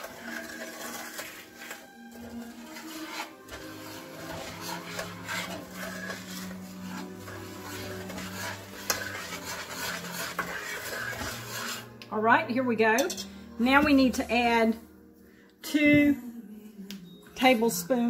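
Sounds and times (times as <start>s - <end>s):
metal spoon scraping a pot: 0.0s - 12.1s, 12.9s - 14.6s.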